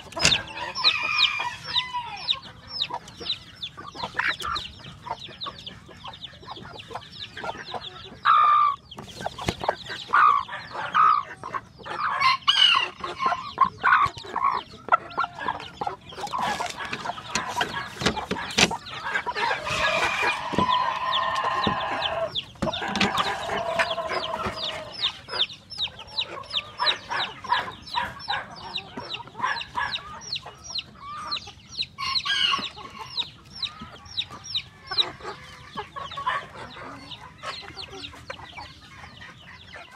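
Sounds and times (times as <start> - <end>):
chickens clucking: 0.0 - 39.9
rooster crowing: 0.5 - 2.4, 19.4 - 25.0.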